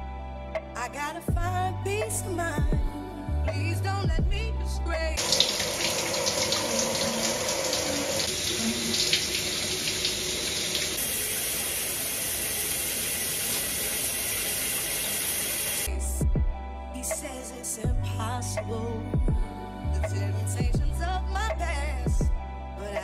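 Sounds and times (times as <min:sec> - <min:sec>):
shower water spraying: 0:05.2 - 0:15.9.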